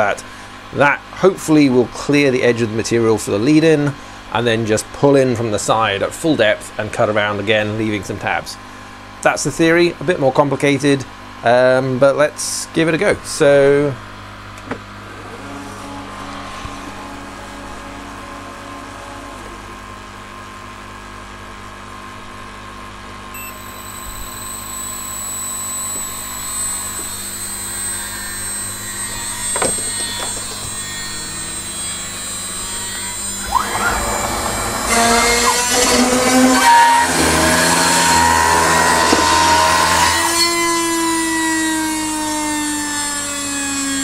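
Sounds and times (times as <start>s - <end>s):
router spindle whine: 15.0s - 19.8s, 23.3s - 44.0s
machine hum: 23.1s - 41.4s
end mill cutting plywood: 23.4s - 44.0s.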